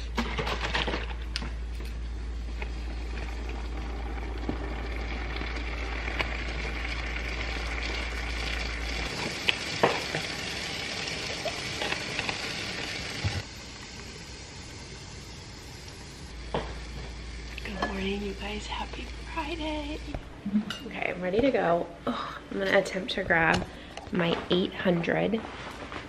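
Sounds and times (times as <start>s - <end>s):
sizzling hiss: 1.8s - 20.6s.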